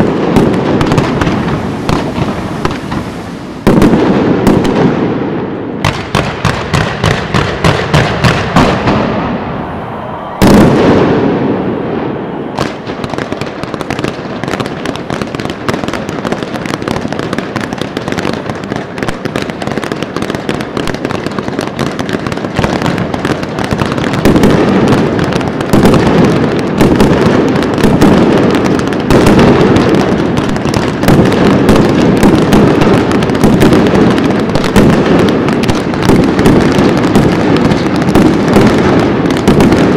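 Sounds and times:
big firework blast: 0.0 - 39.9
fireworks bangs: 0.0 - 39.9
fireworks crackling: 0.0 - 39.9.

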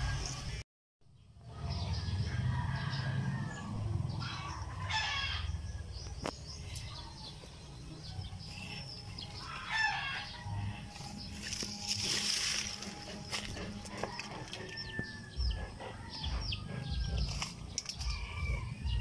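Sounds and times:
chickens calling: 1.8 - 19.0
rooster crowing: 2.0 - 5.8, 9.4 - 10.8, 13.8 - 17.3, 18.0 - 19.0.

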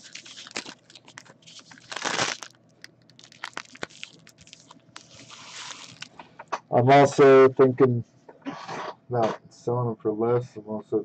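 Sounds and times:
foil wrappers crinkling: 0.0 - 6.2.

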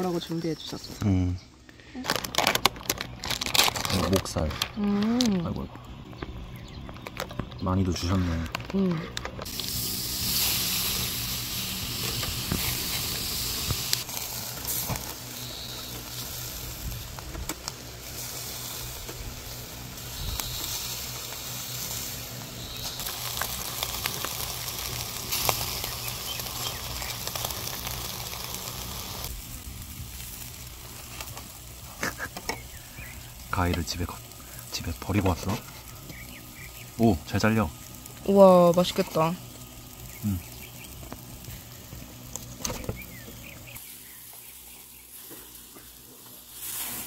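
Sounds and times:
pork sizzling with pops: 2.0 - 47.0.

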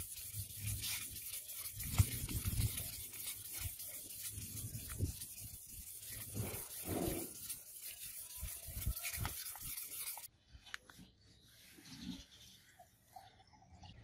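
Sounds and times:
cloth wiping blade: 0.0 - 10.3
sandpaper scraping metal blade: 0.0 - 10.3.

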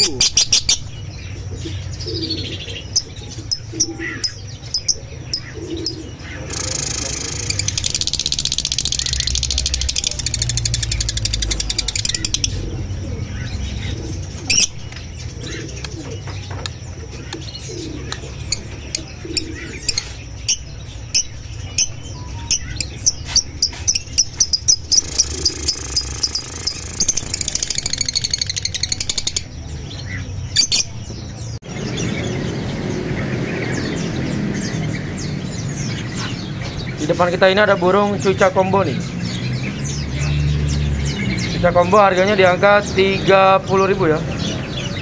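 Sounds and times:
birds chirping: 0.0 - 45.0.

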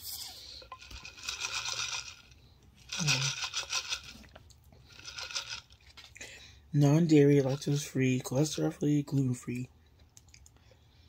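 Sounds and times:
person sipping a drink: 2.9 - 6.3.

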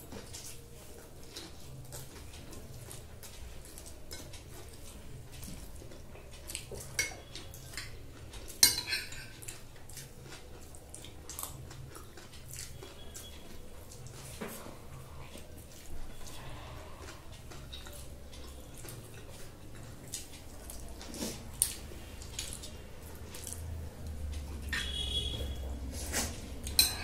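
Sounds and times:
cutlery clinking on glass plates: 6.6 - 9.7, 26.6 - 27.0.

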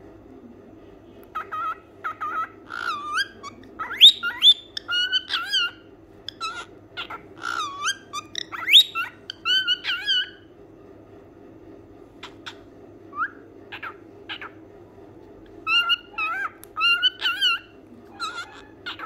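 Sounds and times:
cockatiel whistling and chirping: 1.4 - 10.4, 15.6 - 19.0.

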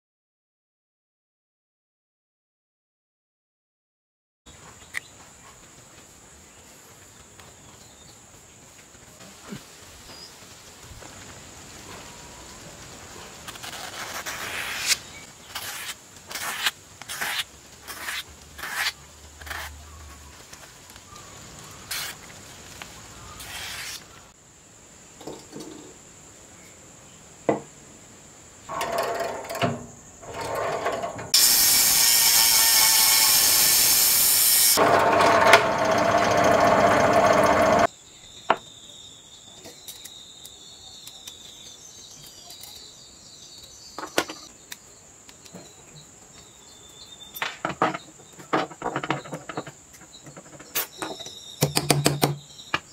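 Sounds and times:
knife slicing newspaper: 13.5 - 19.9, 21.8 - 22.2, 23.4 - 24.1
drill press boring wood: 28.7 - 37.9
loud power tool: 30.3 - 37.9.

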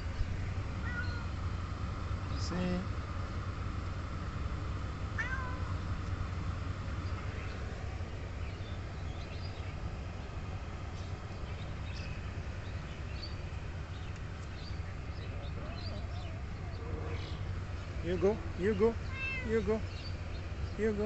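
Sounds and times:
steady low hum: 0.0 - 21.0
young cat meowing: 0.8 - 1.3, 5.2 - 5.8, 15.7 - 17.3, 19.0 - 19.6.

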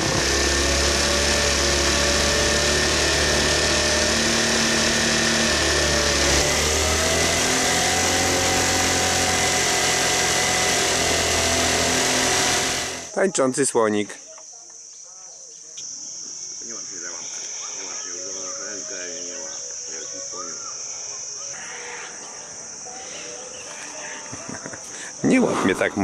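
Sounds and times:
moped engine running: 0.0 - 13.2.

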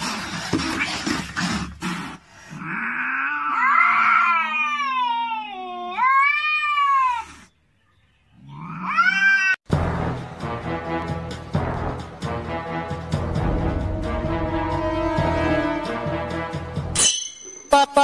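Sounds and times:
cat yowling: 2.6 - 7.5, 8.4 - 9.7.

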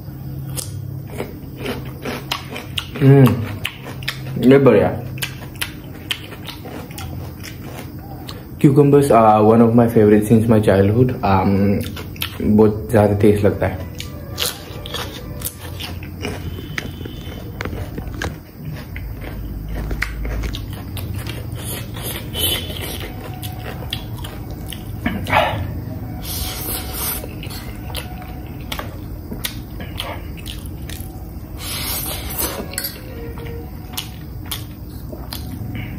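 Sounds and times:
person chewing: 0.4 - 8.6, 11.7 - 12.6, 13.8 - 35.9.

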